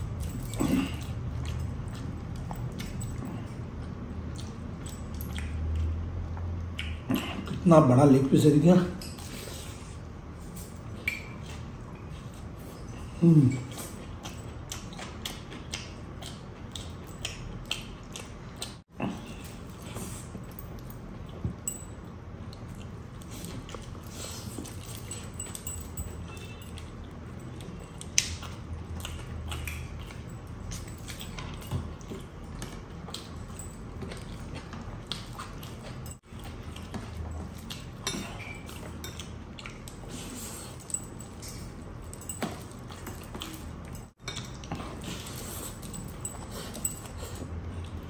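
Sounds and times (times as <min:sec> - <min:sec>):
person chewing food: 0:00.0 - 0:07.6, 0:09.2 - 0:48.0.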